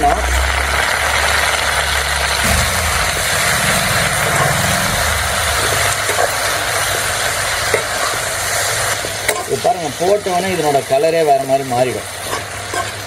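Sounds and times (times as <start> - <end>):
leaves sizzling in hot oil: 0.0 - 13.0
low rumble: 0.4 - 7.3.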